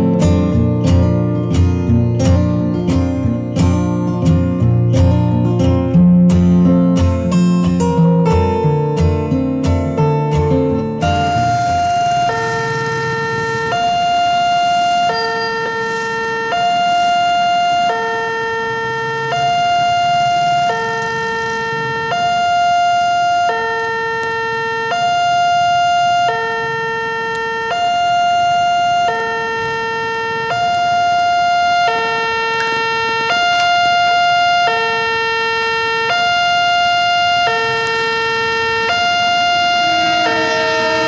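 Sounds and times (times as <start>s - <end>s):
level crossing two-tone alarm: 0.0s - 41.0s
faint road traffic rumble: 10.0s - 41.0s.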